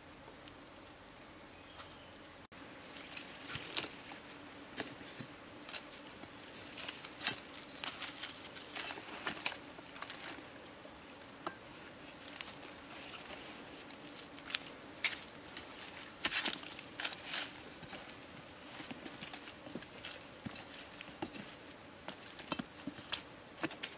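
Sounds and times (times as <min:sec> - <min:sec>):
dry leaves rustling and crackling: 0:02.8 - 0:04.3, 0:05.8 - 0:23.9
footsteps on forest debris: 0:12.1 - 0:23.9.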